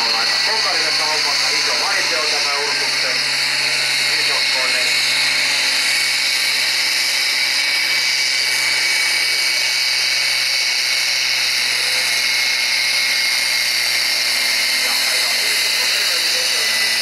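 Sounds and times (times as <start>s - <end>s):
tractor diesel engine droning: 0.0s - 5.5s
high-pitched whine: 0.0s - 17.0s.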